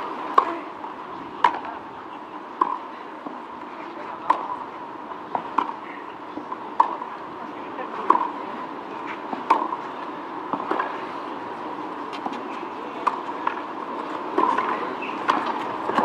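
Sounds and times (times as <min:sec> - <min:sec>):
low crowd murmur: 0:00.0 - 0:16.0
tennis ball struck by racquets: 0:02.6 - 0:02.9, 0:04.2 - 0:04.6, 0:05.3 - 0:07.1, 0:08.0 - 0:08.4, 0:09.3 - 0:09.9, 0:10.5 - 0:11.0, 0:12.1 - 0:16.0.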